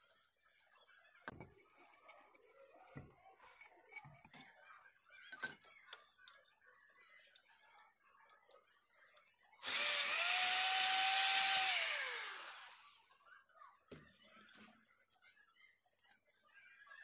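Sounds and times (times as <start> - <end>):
electric drill whining into metal pipe: 9.6 - 13.1.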